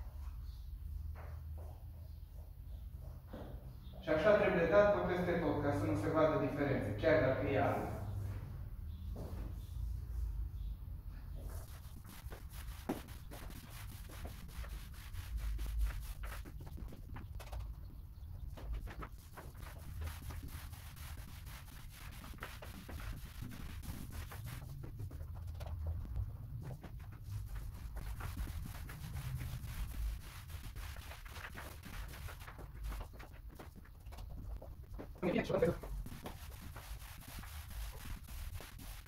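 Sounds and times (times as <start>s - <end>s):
paint roller rubbing on ceiling: 11.4s - 39.0s.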